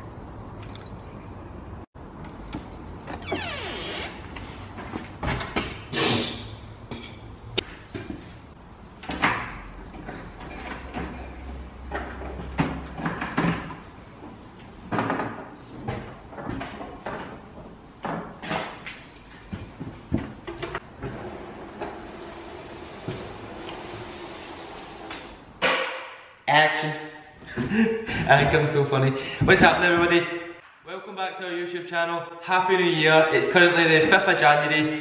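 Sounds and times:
keys jingling: 0.6 - 1.4, 7.8 - 8.6, 9.9 - 12.2, 12.8 - 14.0, 18.9 - 20.5.

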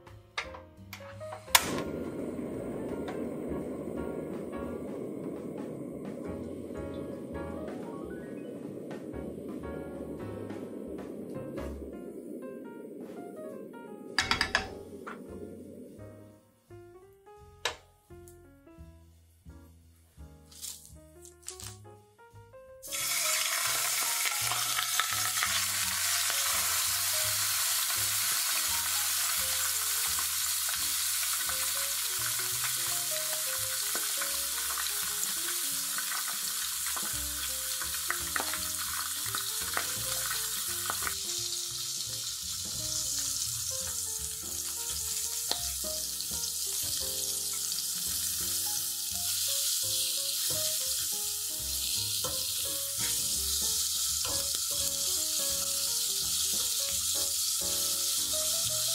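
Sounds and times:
fish frying in oil sizzling: 1.4 - 16.1, 22.8 - 58.9
tongs and fork tapping pan: 14.2 - 14.8.

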